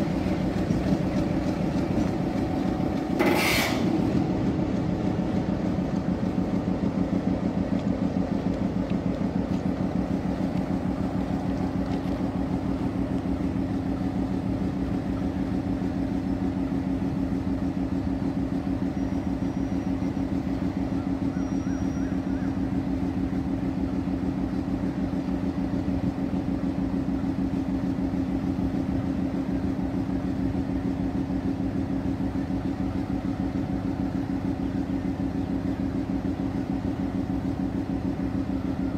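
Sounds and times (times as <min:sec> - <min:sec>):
diesel locomotive idling: 0:00.0 - 0:38.9.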